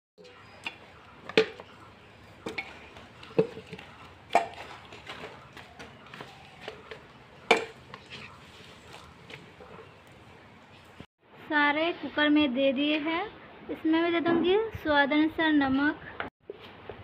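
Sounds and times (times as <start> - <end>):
bones knocking in metal pot: 0.2 - 10.4.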